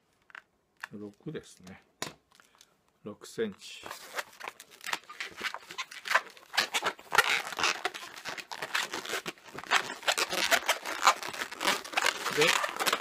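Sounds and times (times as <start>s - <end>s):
balloon latex squeaking: 3.9s - 13.0s.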